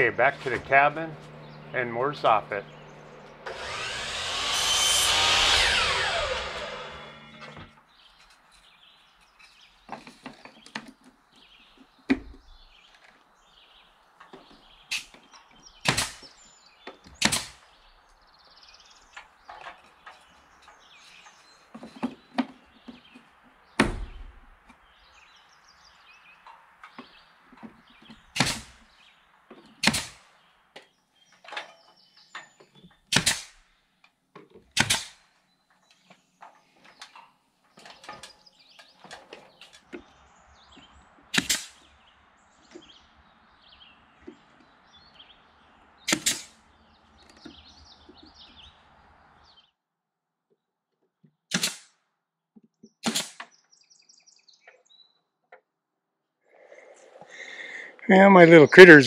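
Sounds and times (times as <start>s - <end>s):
nails driven into wood: 15.8s - 16.4s, 17.0s - 17.7s, 28.0s - 28.8s, 29.8s - 30.3s, 33.0s - 33.7s, 34.6s - 35.3s, 41.3s - 41.8s, 46.1s - 46.6s, 51.5s - 52.0s, 53.0s - 53.5s.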